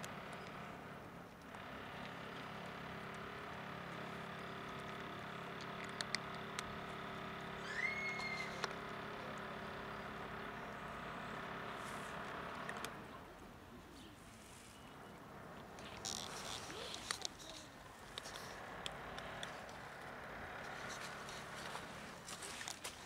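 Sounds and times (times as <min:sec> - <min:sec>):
steady low hum: 0:00.0 - 0:23.0
cat crunching dry kibble: 0:01.9 - 0:07.6, 0:15.6 - 0:23.0.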